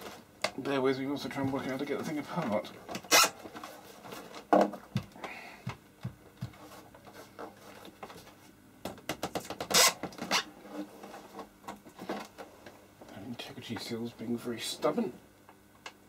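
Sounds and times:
scraping rustle: 10.3s - 12.7s.

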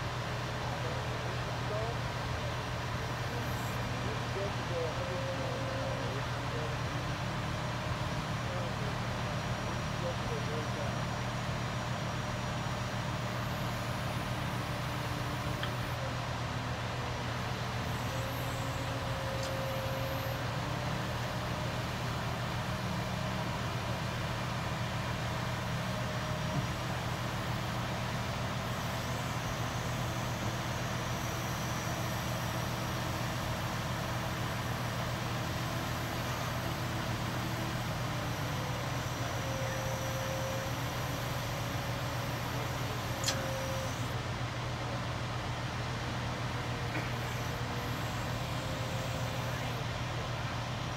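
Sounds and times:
diesel engine droning: 0.0s - 50.9s
faint click: 43.2s - 43.6s.

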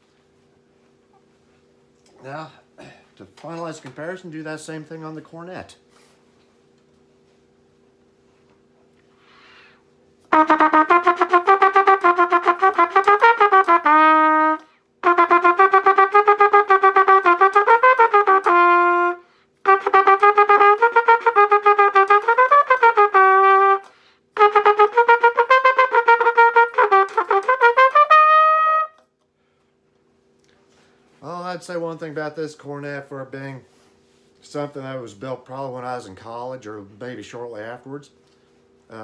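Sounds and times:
cornet playing fast runs: 10.3s - 23.8s, 24.4s - 28.9s.

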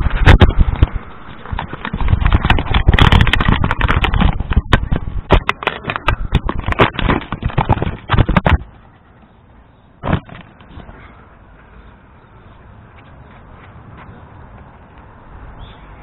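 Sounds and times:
camera knocking and rattling: 0.0s - 8.7s, 10.0s - 10.8s.

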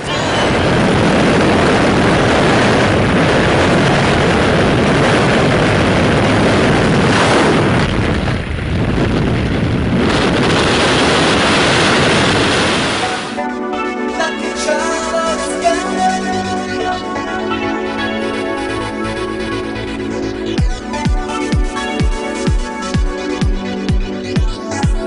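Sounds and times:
wind buffeting microphone: 0.0s - 13.4s
propeller plane engine and airflow: 0.0s - 25.0s.

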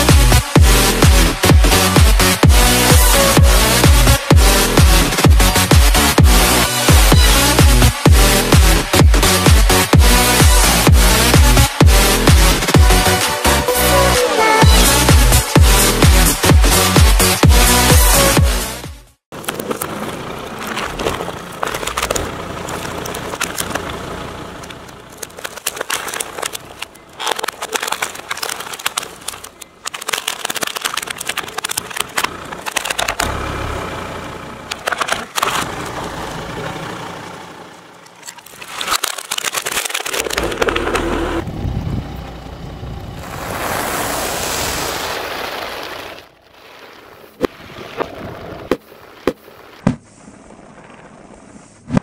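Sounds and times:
plastic cracking under tyre: 19.3s - 33.3s, 34.7s - 36.0s, 38.0s - 41.4s.

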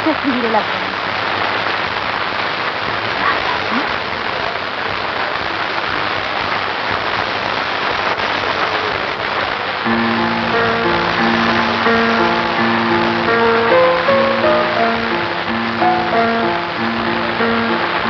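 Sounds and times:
steady rain hiss: 0.0s - 18.0s
music with held notes: 9.9s - 18.0s.

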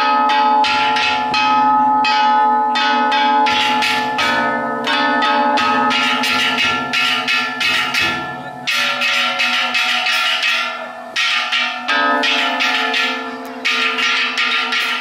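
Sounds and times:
gongs clanging rapidly: 0.0s - 15.0s
deep drum beats: 3.5s - 10.6s.

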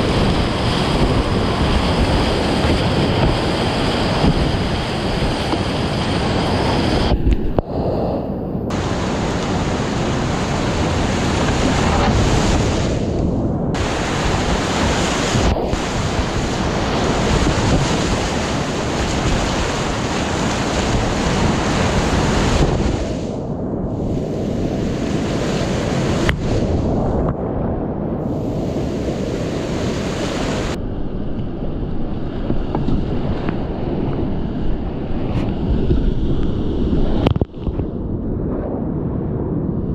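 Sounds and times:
whitewater rapids rushing: 0.0s - 7.1s, 8.7s - 12.9s, 13.8s - 23.2s, 28.6s - 30.8s
wind noise on microphone: 0.0s - 39.9s.

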